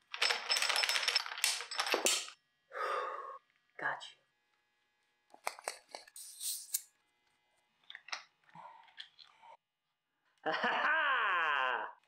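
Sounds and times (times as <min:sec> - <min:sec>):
small metal clicks and rattles: 0:00.0 - 0:02.4.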